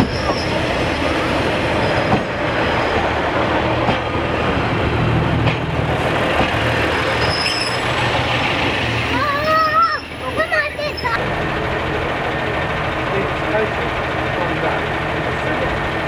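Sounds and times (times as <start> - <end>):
diesel train engine droning: 0.0 - 16.0
train wheel knocks: 1.6 - 4.6, 5.4 - 6.8.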